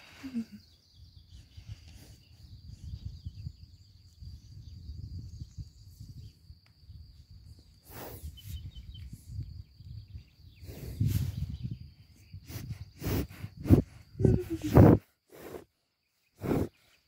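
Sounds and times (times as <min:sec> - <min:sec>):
horse breath puffs: 0:07.8 - 0:08.7, 0:10.6 - 0:11.7, 0:12.3 - 0:15.7, 0:16.4 - 0:17.0.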